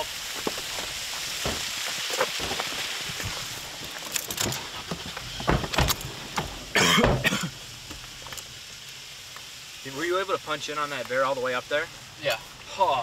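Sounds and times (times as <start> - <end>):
waterfall rushing: 0.0 - 8.6
clicks and knocks in truck cab: 5.4 - 7.3.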